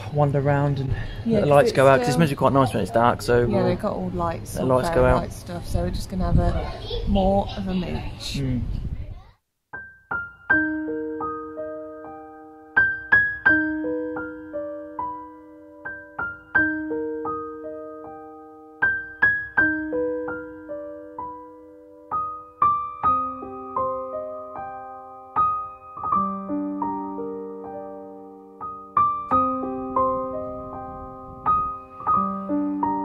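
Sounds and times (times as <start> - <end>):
gentle piano melody: 9.7 - 33.0.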